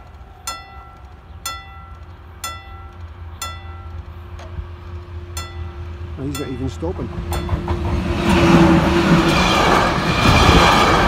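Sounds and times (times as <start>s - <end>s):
level crossing warning bell: 0.0s - 4.4s, 5.2s - 7.8s.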